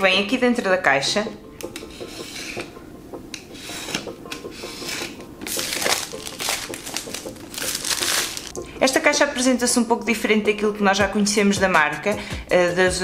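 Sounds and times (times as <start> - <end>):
knife scraping plastic wrap: 3.7 - 8.5
plastic film tearing: 5.4 - 8.5.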